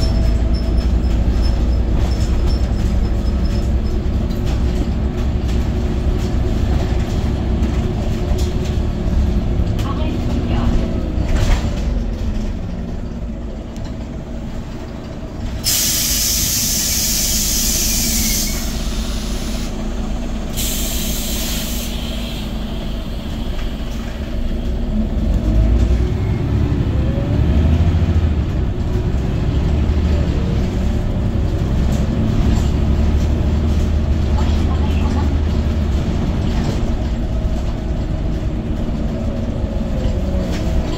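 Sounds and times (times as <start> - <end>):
bus engine droning: 0.0 - 40.9
compressed air hissing: 15.6 - 19.8, 20.6 - 23.2.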